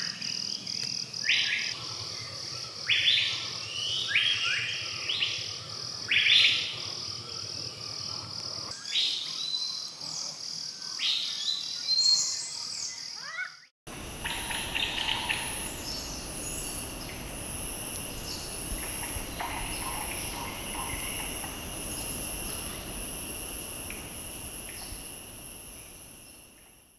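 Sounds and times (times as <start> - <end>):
high insect drone: 0.0 - 8.8, 13.9 - 26.9
high pulsing insect chirp: 0.0 - 12.5, 13.9 - 26.9
bird chirps: 14.1 - 26.4.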